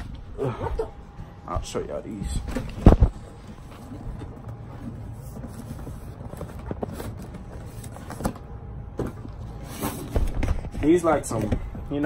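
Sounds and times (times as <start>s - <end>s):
cardboard box handling rumble: 2.5s - 11.4s.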